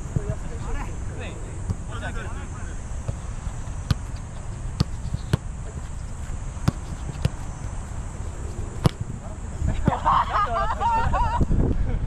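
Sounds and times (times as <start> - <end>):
low background noise: 0.0 - 12.0
soccer ball thuds: 1.6 - 2.0, 2.9 - 10.1.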